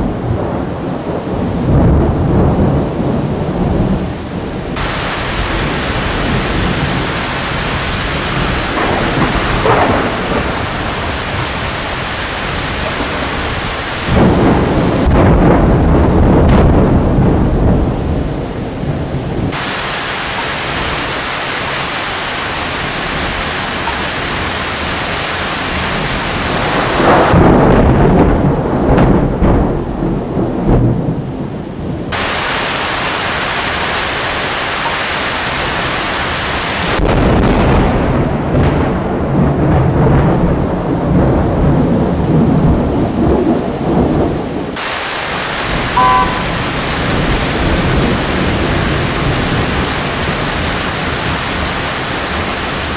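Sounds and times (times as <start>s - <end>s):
sharp thunderclap: 0.0s - 33.5s, 36.8s - 44.9s
thunder rumbling: 0.0s - 52.9s
rain hissing: 2.3s - 28.8s, 31.6s - 37.8s, 41.1s - 52.9s.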